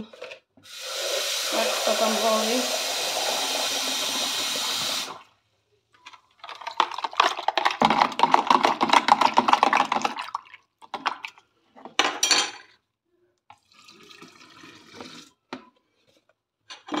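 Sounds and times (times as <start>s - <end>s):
running water: 0.6s - 5.3s
spoon stirring in plastic jug: 6.0s - 11.4s.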